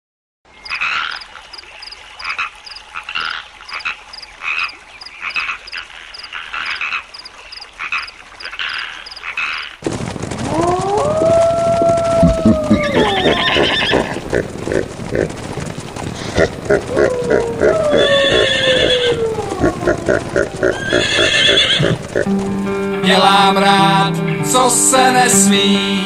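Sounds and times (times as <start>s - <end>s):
frogs croaking in chorus: 0.6s - 9.8s
high regular ticking call: 7.1s - 9.3s
long sliding pitched tones: 16.8s - 21.1s.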